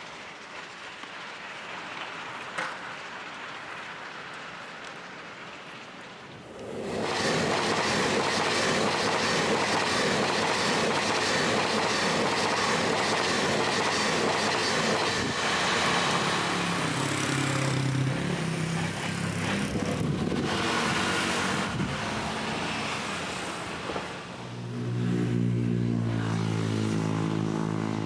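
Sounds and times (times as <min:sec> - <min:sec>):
train wheel and rail noise: 0:00.0 - 0:26.4
low drone: 0:06.5 - 0:28.0.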